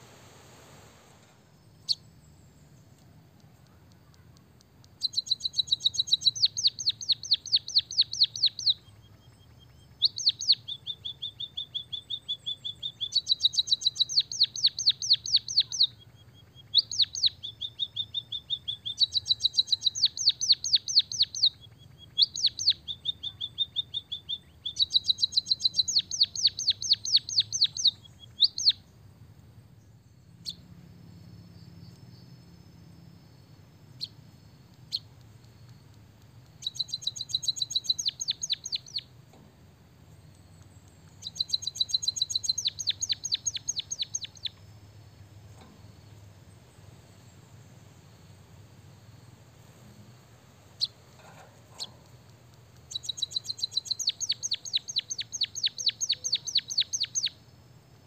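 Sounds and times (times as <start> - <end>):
faint bird chirps: 1.1 - 58.0
bird singing rattling trills: 1.4 - 58.0
bird whistled notes: 5.0 - 28.8, 36.6 - 39.1, 41.2 - 44.6, 52.9 - 57.4.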